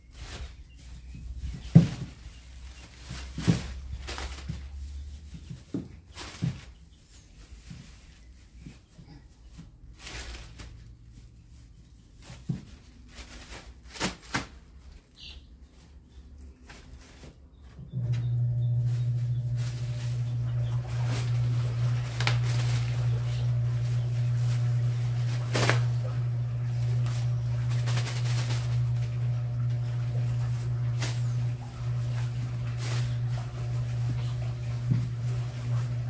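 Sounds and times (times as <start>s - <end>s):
plastic bags rustling: 0.0s - 36.0s
steady low hum: 17.6s - 36.0s.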